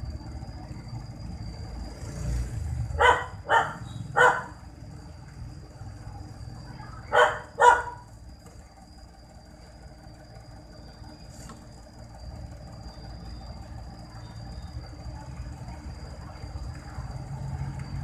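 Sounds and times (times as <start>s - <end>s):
faint high whine: 0.0s - 18.0s
low background rumble: 0.0s - 18.0s
dog barking: 3.0s - 4.6s, 7.1s - 8.1s.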